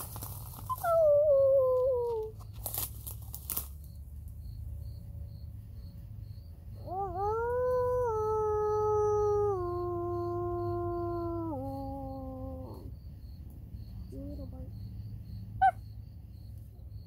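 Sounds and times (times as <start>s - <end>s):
people howling like wolves: 6.8s - 13.0s.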